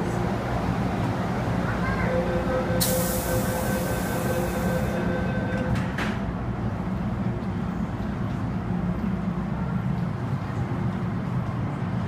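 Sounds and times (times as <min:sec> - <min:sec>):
train low rumble: 0:00.0 - 0:12.0
door-closing warning tone: 0:02.0 - 0:06.2
train doors shutting thuds: 0:02.8 - 0:06.4.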